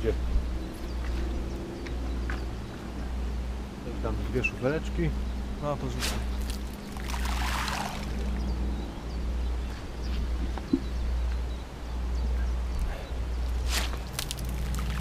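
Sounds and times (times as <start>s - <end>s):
rushing swish: 6.0s - 6.5s.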